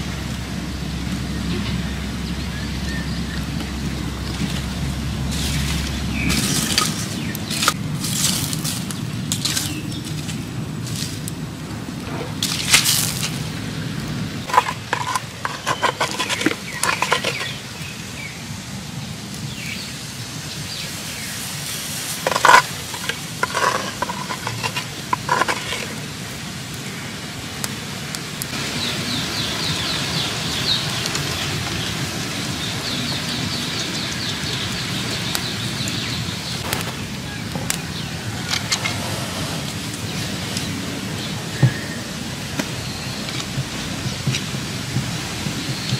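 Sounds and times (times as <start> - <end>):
low fire sound: 0.0 - 45.9
fire pops and clicks: 3.4 - 18.0, 22.2 - 26.1, 34.9 - 39.0, 42.5 - 45.2.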